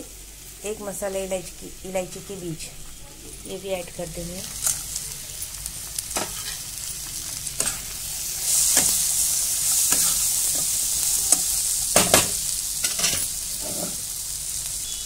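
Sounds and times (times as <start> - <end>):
food sizzling in a pan: 0.0 - 15.0
steel spatula scraping a pan: 6.1 - 6.7, 7.6 - 11.6, 12.8 - 14.0.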